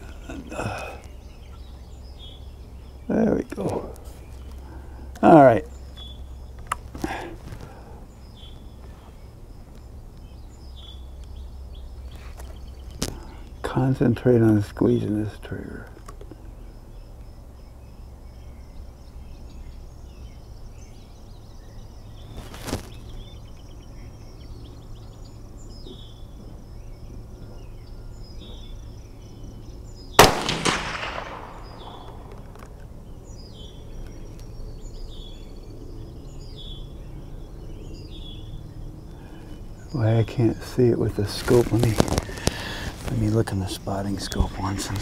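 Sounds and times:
birds chirping: 0.0s - 45.0s
faint crack: 12.1s - 13.5s, 22.3s - 23.1s, 30.2s - 32.9s, 41.3s - 43.4s
rifle shot with echo: 30.2s - 32.5s.

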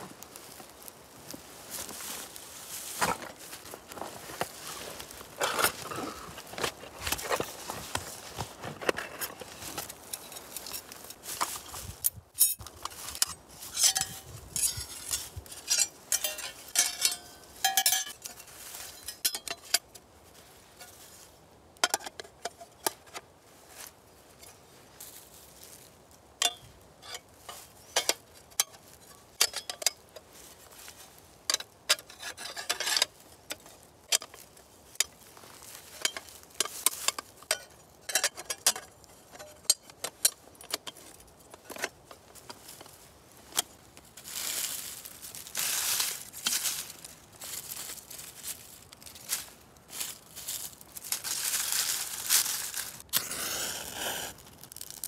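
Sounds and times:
metal plates clinking and scraping: 4.0s - 11.7s, 12.4s - 19.9s, 26.4s - 30.2s, 31.5s - 34.4s, 35.0s - 42.8s.

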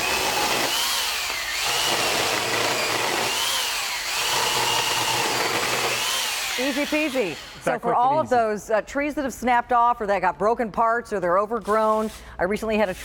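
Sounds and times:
electric chainsaw cutting wood: 0.0s - 7.7s.

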